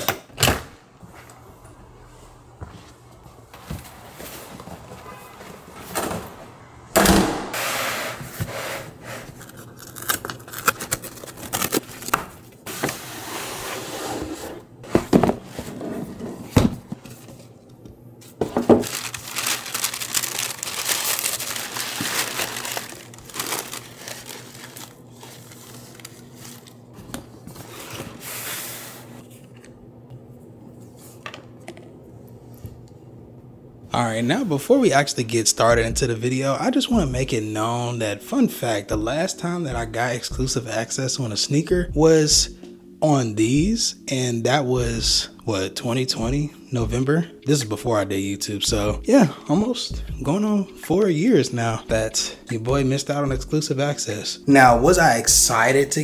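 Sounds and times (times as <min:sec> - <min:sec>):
tissue paper tearing and crinkling: 0:18.7 - 0:26.9.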